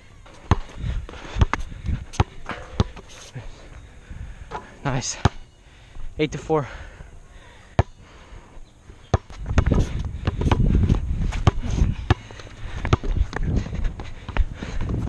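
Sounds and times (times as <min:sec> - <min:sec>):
basketball bouncing on asphalt: 0:00.2 - 0:03.1, 0:07.8 - 0:08.0, 0:09.1 - 0:15.0.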